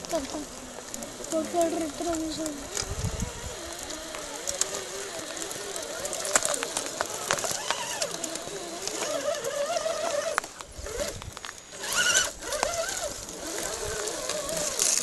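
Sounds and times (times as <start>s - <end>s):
sharp clicks and snaps: 0.0s - 9.2s, 10.2s - 11.6s
electric motor whining: 0.0s - 15.0s.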